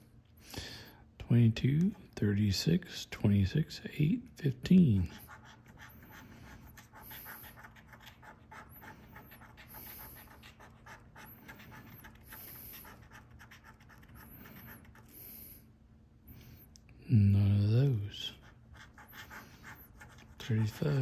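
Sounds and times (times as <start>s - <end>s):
coin scratching lottery ticket: 5.1s - 15.1s, 18.4s - 21.0s.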